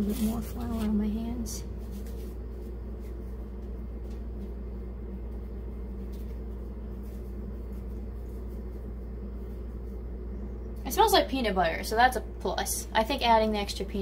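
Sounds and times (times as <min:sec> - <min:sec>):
hands rubbing dough: 0:00.0 - 0:10.2
low background hum: 0:00.0 - 0:14.0.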